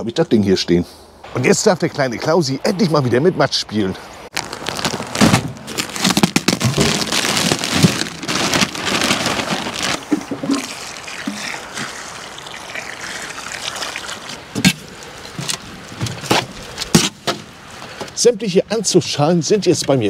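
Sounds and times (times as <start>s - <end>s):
compost pouring from plastic bag: 4.4s - 14.4s
water splashing from watering can: 8.8s - 15.5s.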